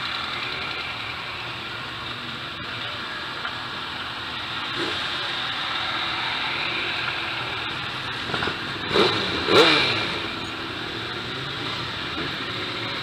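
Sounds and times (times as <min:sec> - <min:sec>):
motorcycles riding past: 0:04.0 - 0:13.0.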